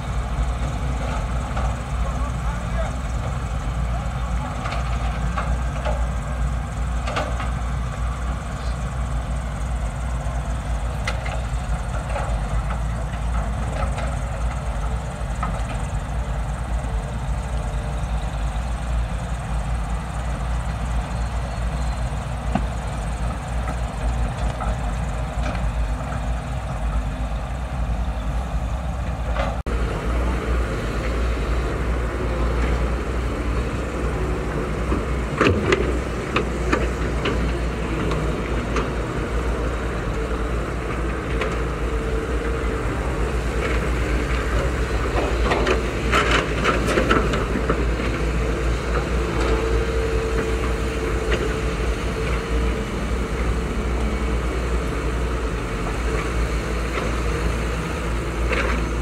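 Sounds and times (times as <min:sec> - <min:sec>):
excavator diesel engines rumbling: 0:00.0 - 0:59.0.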